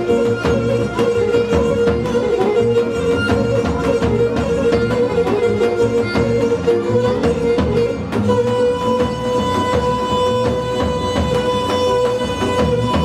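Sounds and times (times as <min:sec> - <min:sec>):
bowed fiddle melody: 0:00.0 - 0:13.0.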